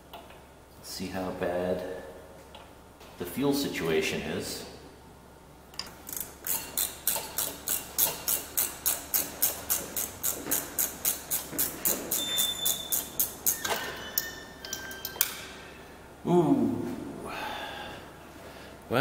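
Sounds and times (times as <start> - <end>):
ratchet clicking: 5.8 - 15.4
scrapes and short squeaks: 9.4 - 14.6.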